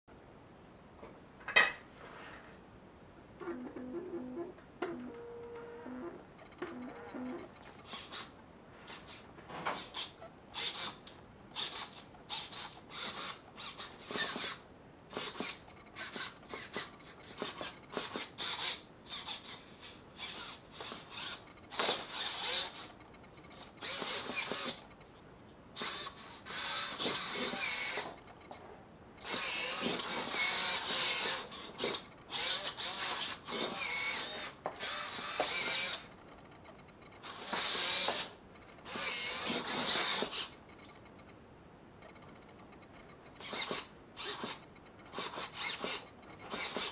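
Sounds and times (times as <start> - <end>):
servo motors whirring: 9.8 - 11.0, 11.6 - 22.9, 23.6 - 24.9, 25.8 - 28.2, 29.2 - 36.1, 36.7 - 40.6, 43.4 - 46.9.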